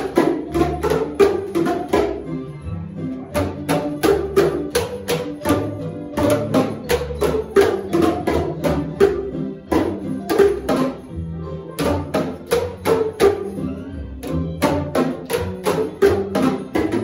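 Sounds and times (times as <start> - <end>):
percussion tubes struck: 0.0 - 2.5, 3.2 - 17.0.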